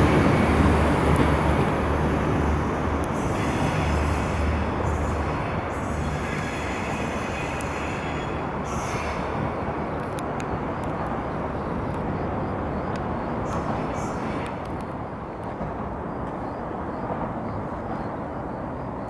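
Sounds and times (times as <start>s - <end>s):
train rolling rumble: 0.0s - 19.0s
faint high ticks: 7.5s - 7.8s, 10.0s - 11.2s, 12.9s - 13.7s.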